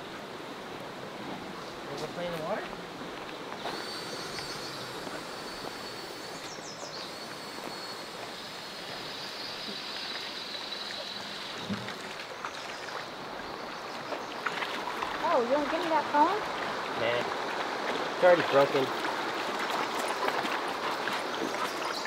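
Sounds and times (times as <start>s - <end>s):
faint high-pitched whine: 1.2s - 13.7s.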